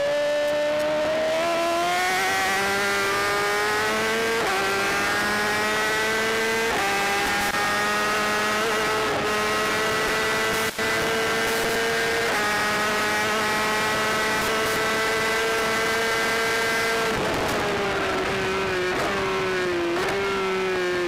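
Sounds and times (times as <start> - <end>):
motorcycle engine accelerating: 0.0 - 21.0
wind noise: 15.7 - 20.1.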